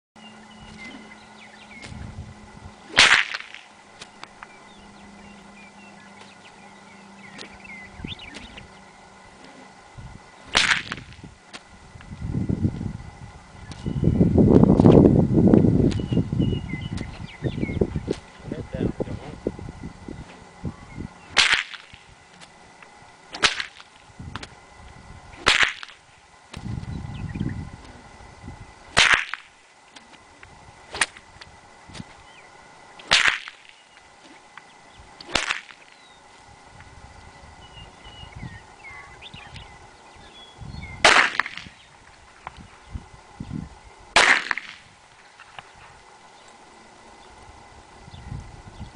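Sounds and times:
whip crack: 0:02.9 - 0:04.1, 0:08.3 - 0:08.7, 0:10.5 - 0:11.6, 0:21.4 - 0:22.0, 0:23.3 - 0:24.5, 0:25.4 - 0:26.6, 0:29.0 - 0:30.1, 0:30.9 - 0:31.2, 0:33.0 - 0:34.4, 0:35.2 - 0:35.9, 0:41.0 - 0:41.8, 0:44.1 - 0:44.9.

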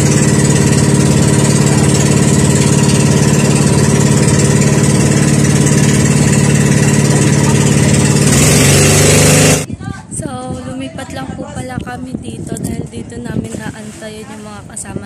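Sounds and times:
boat engine droning: 0:00.0 - 0:09.7.

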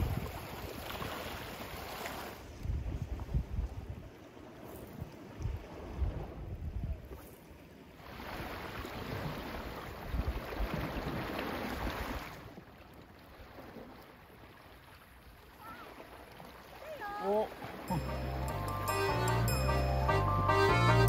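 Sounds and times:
wind buffeting microphone: 0:00.0 - 0:01.2, 0:02.4 - 0:04.2, 0:04.9 - 0:07.2.

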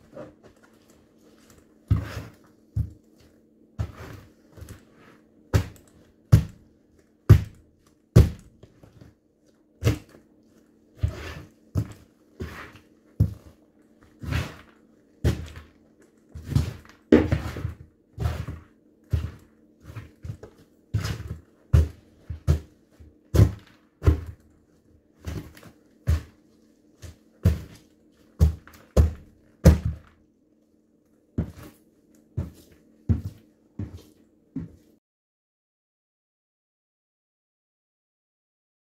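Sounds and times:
boots stomping heavy thuds: 0:05.5 - 0:06.6, 0:07.3 - 0:07.6, 0:08.2 - 0:08.7, 0:20.3 - 0:24.4, 0:28.4 - 0:30.1.

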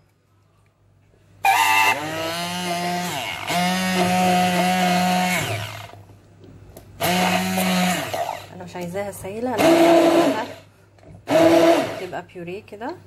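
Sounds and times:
hand blender motor whining: 0:01.5 - 0:06.0, 0:07.0 - 0:08.5, 0:09.6 - 0:10.6, 0:11.3 - 0:12.1.

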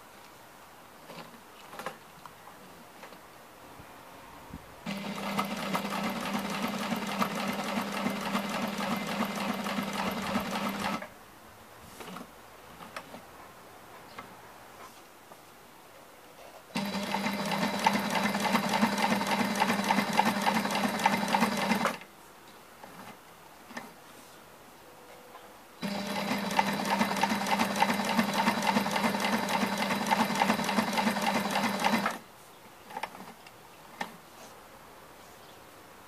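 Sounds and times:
sewing machine stitching leather: 0:04.9 - 0:11.1, 0:16.8 - 0:22.0, 0:25.8 - 0:32.2.

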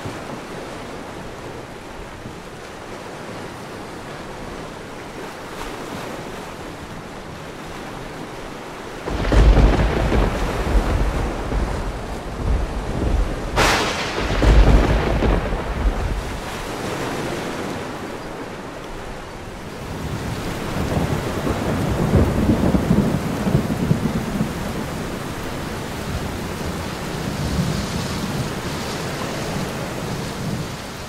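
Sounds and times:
steady rain: 0:00.0 - 0:31.0
thunder rumbling: 0:09.1 - 0:18.0, 0:19.9 - 0:27.7.

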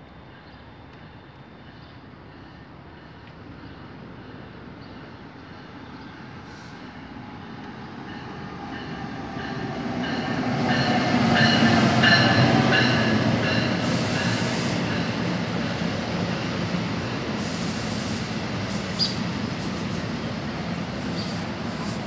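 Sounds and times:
train rumbling past: 0:00.1 - 0:22.0
high hiss or squeal: 0:17.4 - 0:20.0.

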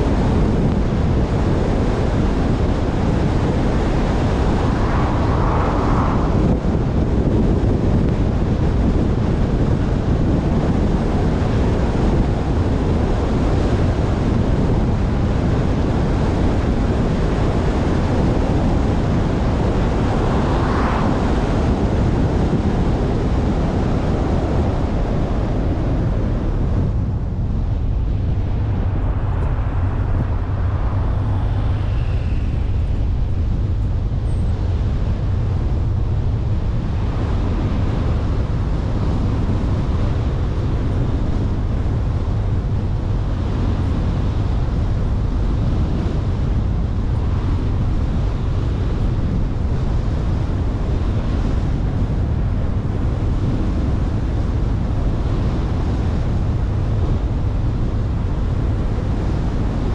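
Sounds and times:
wind rumble on microphone: 0:00.0 - 0:59.9
tyre and road noise: 0:02.6 - 0:08.7, 0:18.3 - 0:23.2, 0:26.9 - 0:38.2.

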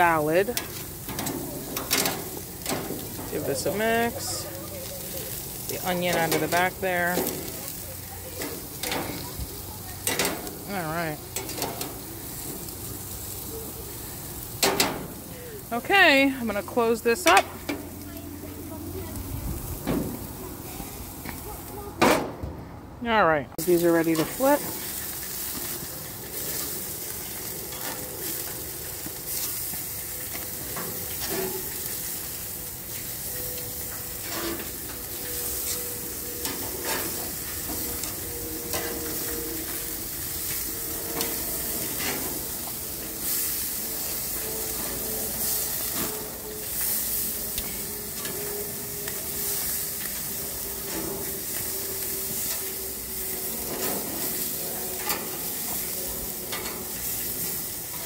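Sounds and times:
tongs clicking and scraping grates: 0:00.0 - 0:09.4, 0:10.0 - 0:12.7, 0:24.1 - 0:58.0
meat sizzling on a grill: 0:00.0 - 0:21.9, 0:23.6 - 0:58.0.

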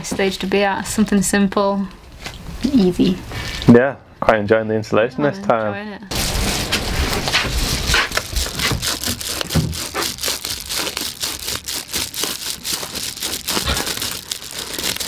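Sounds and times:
foil insulation crinkling: 0:06.1 - 0:15.0
scissors cutting: 0:07.9 - 0:15.0.

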